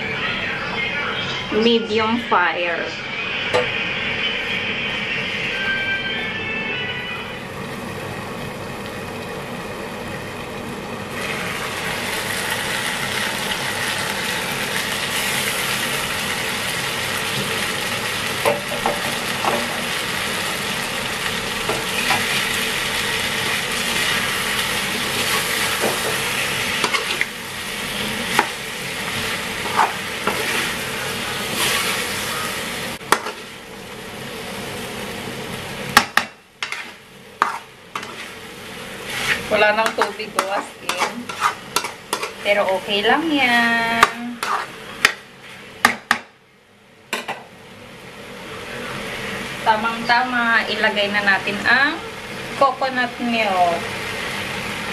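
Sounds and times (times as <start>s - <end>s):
food sizzling in a wok: 1.6s - 54.9s
metal utensil scraping a wok: 25.0s - 33.6s, 36.6s - 43.3s, 43.9s - 45.6s.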